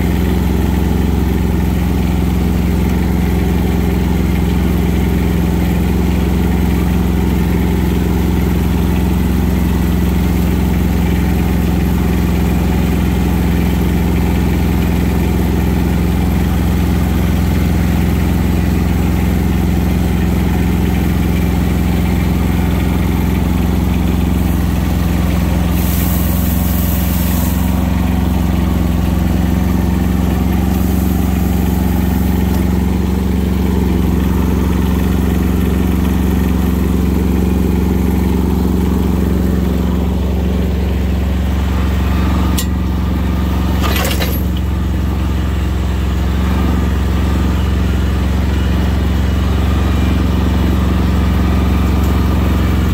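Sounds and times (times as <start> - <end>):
tractor diesel engine running: 0.0 - 52.9
brief hisses: 25.8 - 27.7.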